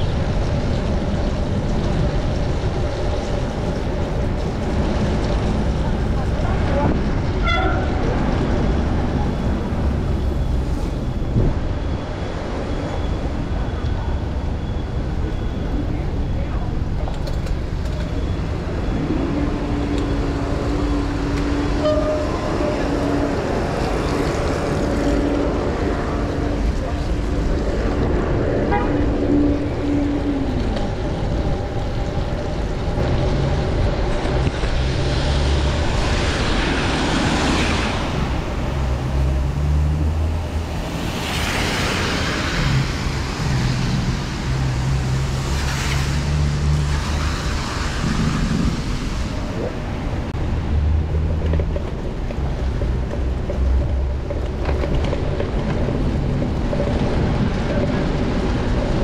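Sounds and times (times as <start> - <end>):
tyres hissing on wet pavement: 34.7 - 50.3.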